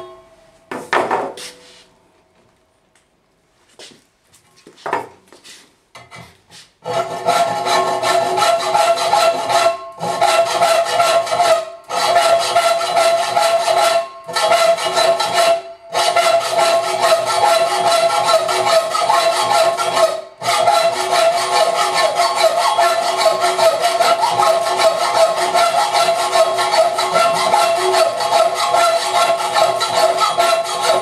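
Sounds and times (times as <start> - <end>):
hacksaw rasping through metal: 6.0 - 31.0.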